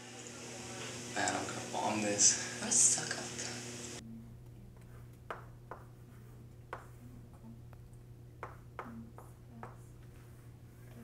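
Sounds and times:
low steady hum: 0:00.0 - 0:11.0
chalk tapping and scraping: 0:04.8 - 0:07.3, 0:08.4 - 0:11.0.

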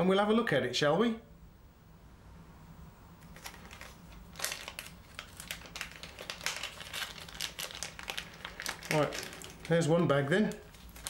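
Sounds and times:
plastic bag crinkling: 0:03.2 - 0:11.0.

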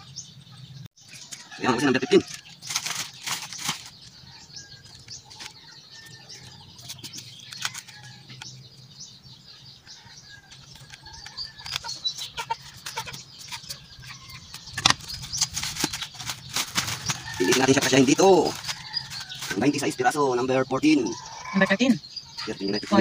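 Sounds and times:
birds calling faintly: 0:00.0 - 0:23.0
plastic rustling and clicks: 0:02.3 - 0:04.1, 0:04.8 - 0:08.5, 0:14.7 - 0:19.5.

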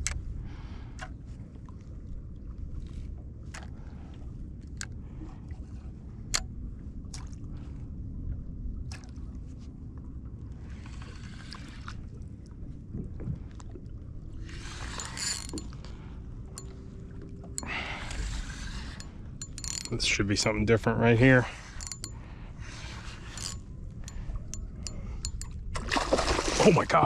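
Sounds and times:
water and wind rumbling: 0:00.0 - 0:27.0
spinning reel cranking: 0:14.6 - 0:15.8, 0:17.6 - 0:20.2, 0:21.6 - 0:22.2, 0:22.8 - 0:25.5.

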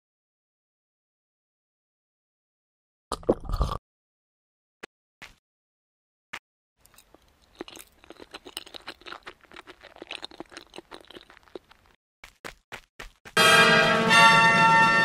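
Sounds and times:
crunching and chewing: 0:06.8 - 0:12.4.

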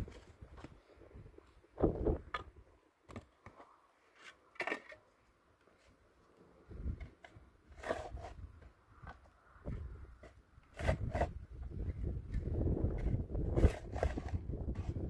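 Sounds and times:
clicks of grit and stones: 0:01.9 - 0:15.0
shovel scraping into soil: 0:07.7 - 0:08.6, 0:10.2 - 0:15.0.

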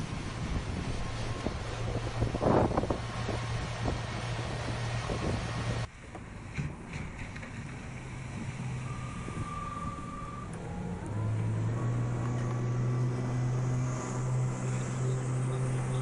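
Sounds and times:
electric outboard motor humming: 0:07.8 - 0:16.0.

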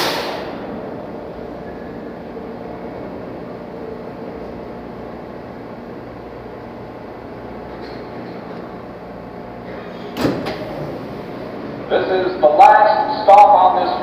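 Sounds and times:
loud hiss: 0:00.0 - 0:00.6
subway car equipment humming: 0:00.0 - 0:14.0.

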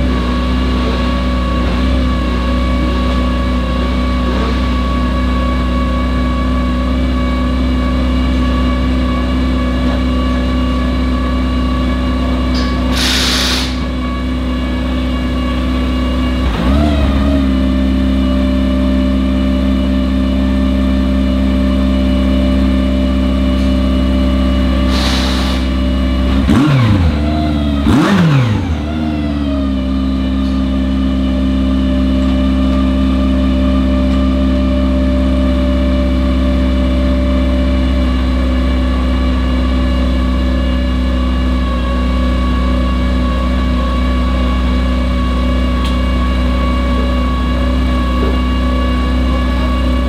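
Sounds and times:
race car engine idling and revving: 0:00.0 - 0:50.0
brief hiss: 0:12.9 - 0:13.8, 0:24.9 - 0:25.7.

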